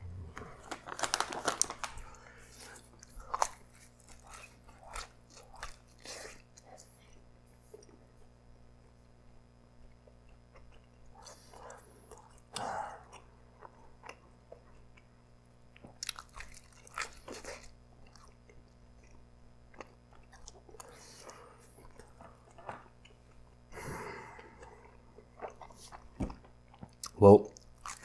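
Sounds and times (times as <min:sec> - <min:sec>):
close chewing: 0:00.7 - 0:08.0, 0:09.9 - 0:23.6, 0:24.2 - 0:28.0.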